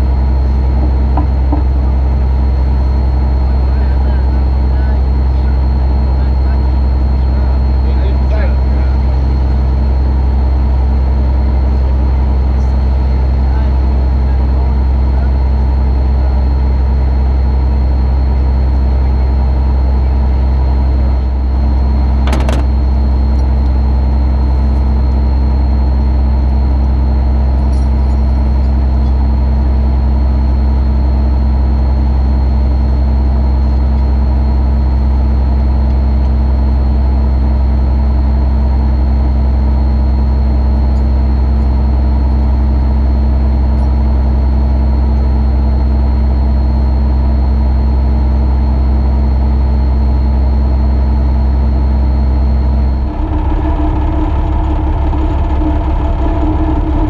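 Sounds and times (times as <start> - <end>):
truck engine drone: 0.0 - 37.1, 51.5 - 57.0
faint steady whine: 0.0 - 44.7, 50.1 - 57.0.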